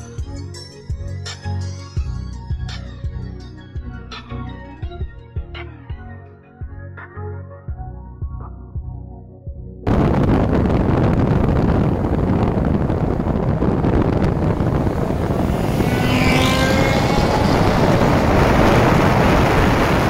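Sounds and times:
car engine accelerating hard: 0:09.9 - 0:20.0
road and wind noise: 0:09.9 - 0:20.0.

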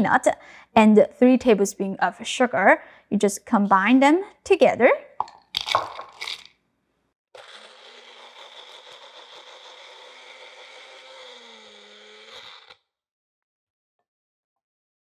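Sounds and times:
blender motor grinding: 0:07.4 - 0:12.8.

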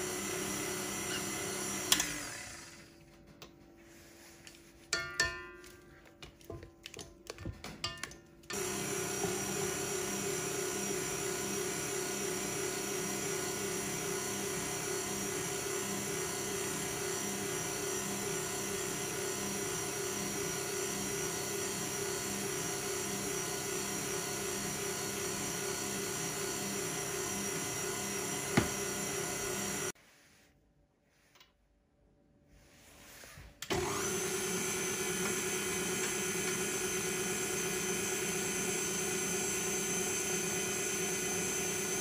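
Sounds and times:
stand mixer motor hum: 0:00.0 - 0:02.9, 0:08.5 - 0:29.9, 0:33.7 - 0:42.0.

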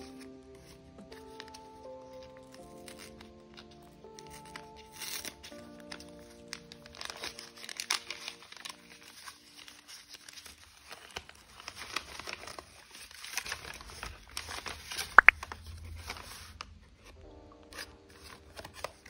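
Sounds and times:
paper crinkling and rustling: 0:00.0 - 0:19.0.

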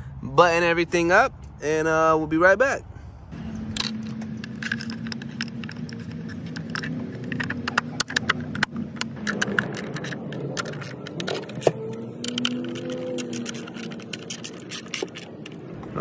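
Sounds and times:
ratchet clicking: 0:03.4 - 0:15.6
metal tools clinking: 0:03.4 - 0:15.7.

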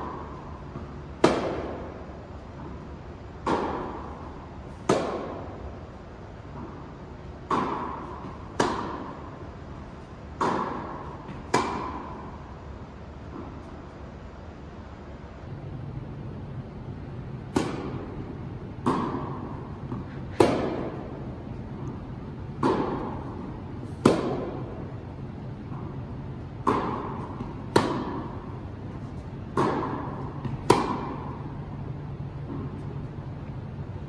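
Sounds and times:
tennis ball hits: 0:00.0 - 0:02.0, 0:03.4 - 0:05.7, 0:06.5 - 0:09.4, 0:10.0 - 0:12.4, 0:17.4 - 0:25.0, 0:25.6 - 0:31.8
steady low hum: 0:00.0 - 0:34.0.

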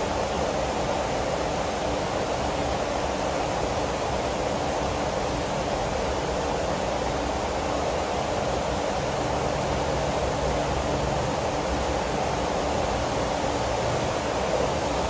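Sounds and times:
rain falling steadily: 0:00.0 - 0:15.0.

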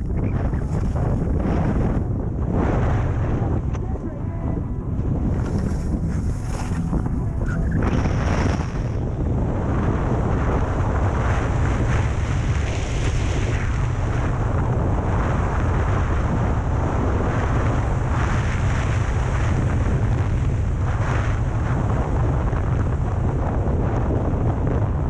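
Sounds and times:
wind rushing over microphone: 0:00.0 - 0:25.0.

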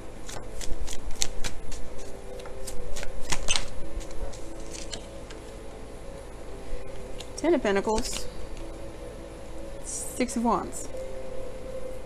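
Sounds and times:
cards being shuffled: 0:00.2 - 0:05.4, 0:08.0 - 0:08.3.

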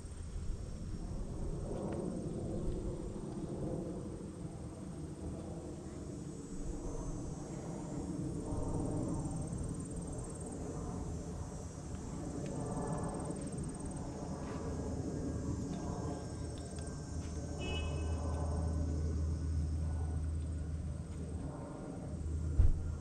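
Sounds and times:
steady low rumble: 0:00.0 - 0:05.8, 0:06.5 - 0:23.0
insects trilling: 0:05.9 - 0:20.8.

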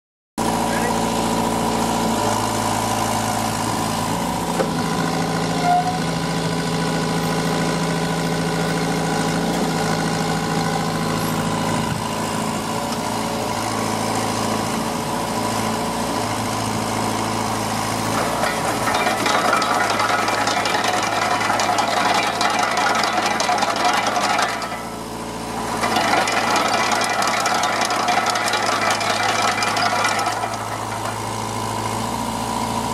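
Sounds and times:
diesel engine running: 0:00.4 - 0:32.9
hydraulic boom working: 0:17.9 - 0:32.2
loud clatter: 0:18.0 - 0:32.1.

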